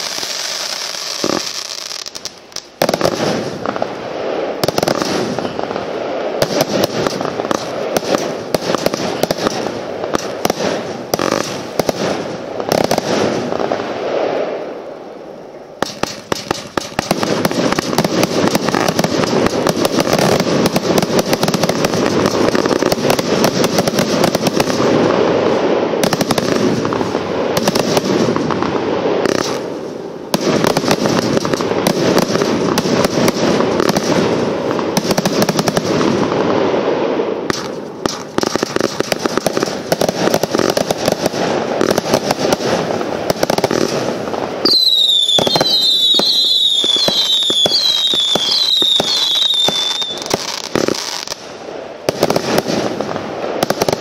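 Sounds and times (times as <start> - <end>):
firework bangs and crackling: 0.0 - 54.0
high falling whistles: 44.6 - 50.4.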